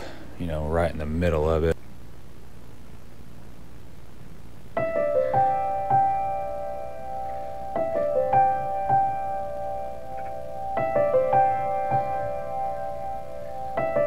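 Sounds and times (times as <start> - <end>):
faint background noise: 0.0 - 14.0
slow piano notes: 4.8 - 14.0.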